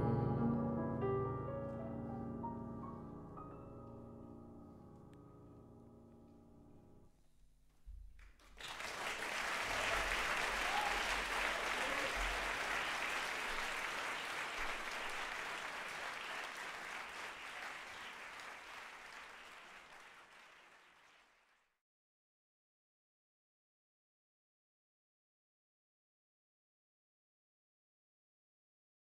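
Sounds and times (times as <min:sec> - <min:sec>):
piano chord: 0:00.0 - 0:07.0
audience applause: 0:08.2 - 0:21.7.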